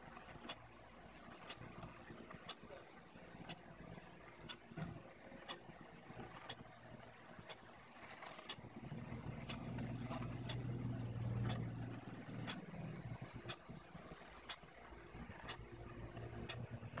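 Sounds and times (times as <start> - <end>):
low steady hum: 0.0 - 17.0
clock ticking: 1.4 - 1.8, 2.5 - 2.7, 4.4 - 4.7, 5.5 - 5.7, 7.4 - 7.6, 9.4 - 17.0.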